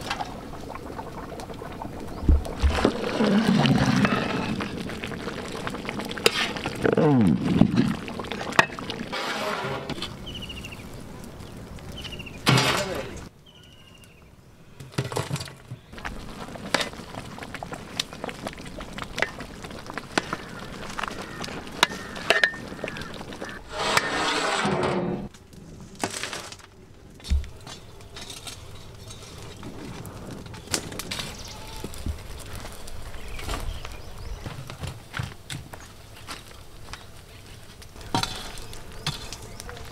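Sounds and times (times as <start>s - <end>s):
burning coals knocking and crackling: 0.0s - 13.3s, 14.8s - 39.9s
loud metal scrape: 9.1s - 10.1s, 23.6s - 25.3s
metal tools clattering on pots: 21.8s - 22.6s.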